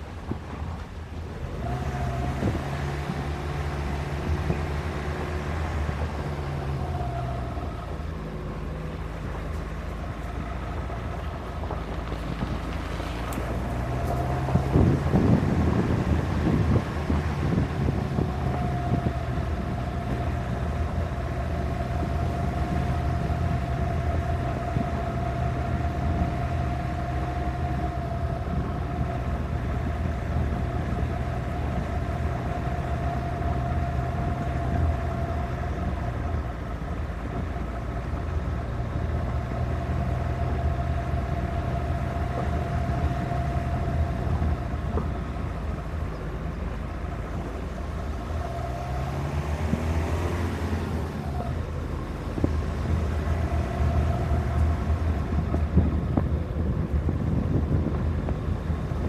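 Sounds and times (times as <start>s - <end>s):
car engine hum: 0.0s - 59.0s
tyres on gravel: 8.6s - 17.2s.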